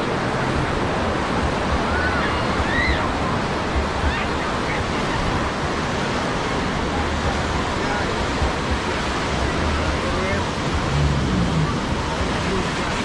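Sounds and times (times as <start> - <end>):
faint distant voices: 0.0 - 13.0
sea surf rushing: 0.0 - 13.0
low rumble: 8.2 - 13.0.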